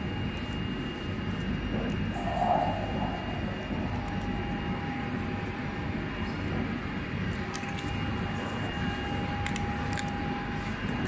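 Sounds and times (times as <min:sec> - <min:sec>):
machinery hum and rumble: 0:00.0 - 0:11.0
thin high tone: 0:02.1 - 0:05.3.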